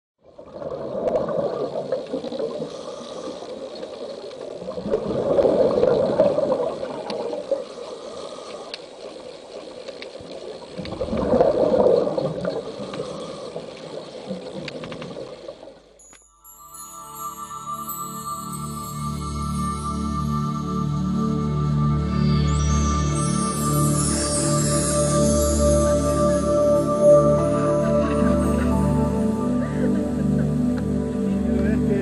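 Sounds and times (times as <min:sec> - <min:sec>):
underwater bubbles gurgling: 0:00.2 - 0:15.9.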